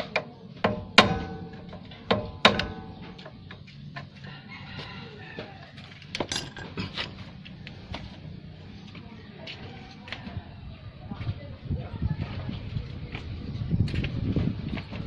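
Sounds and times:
rooster crowing: 0:04.2 - 0:06.0.

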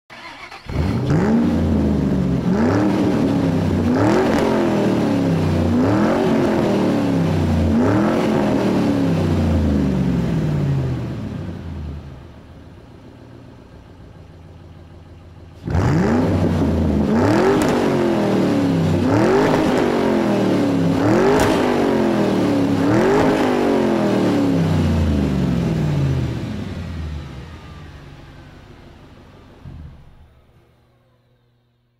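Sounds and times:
engine revving: 0:00.1 - 0:12.2, 0:15.5 - 0:28.8.

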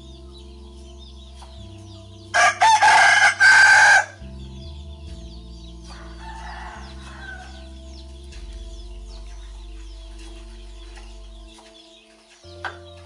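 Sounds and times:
soft background music: 0:00.0 - 0:13.0.

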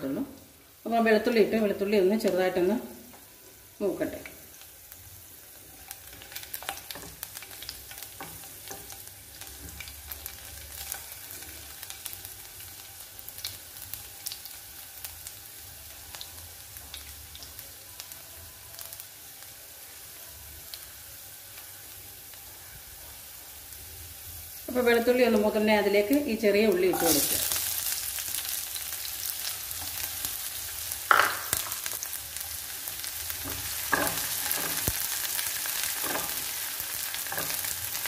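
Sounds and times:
garlic sizzling in oil: 0:00.0 - 0:38.0.

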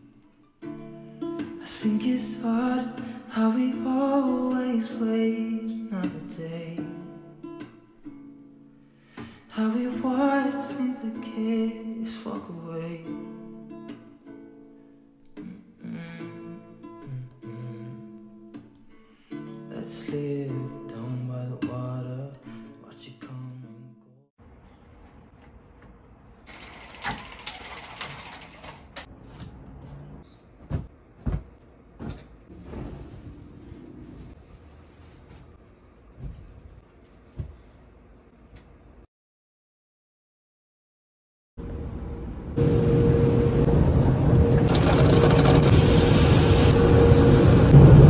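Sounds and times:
car wash machinery humming: 0:41.6 - 0:48.0.

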